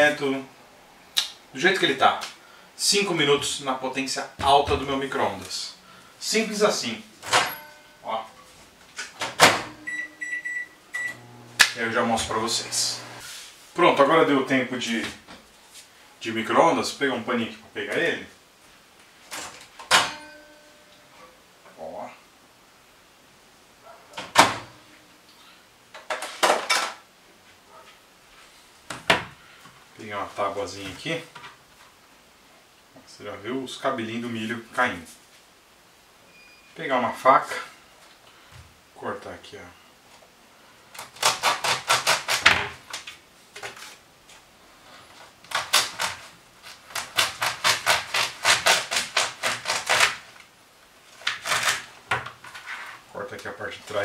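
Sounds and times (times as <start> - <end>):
microwave door shutting: 9.2 - 9.9, 24.2 - 24.8.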